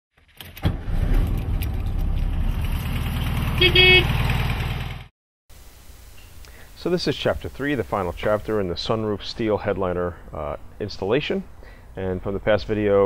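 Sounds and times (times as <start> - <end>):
car engine idling: 1.4 - 5.0.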